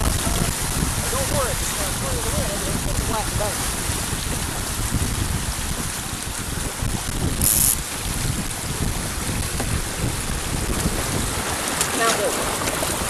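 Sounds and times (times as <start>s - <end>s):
water rushing along a hull: 0.0s - 13.0s
wind buffeting the microphone: 0.0s - 13.0s.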